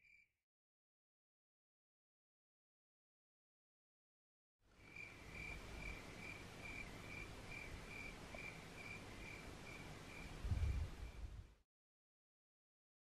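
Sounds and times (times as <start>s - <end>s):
cricket chirping: 0.0s - 0.3s, 4.8s - 11.3s.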